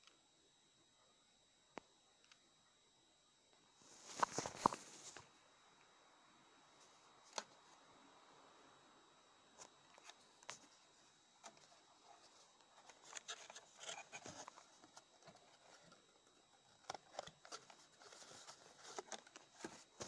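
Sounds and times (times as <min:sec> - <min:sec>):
cardboard box and paper rustling: 0:11.5 - 0:16.0, 0:16.7 - 0:20.0.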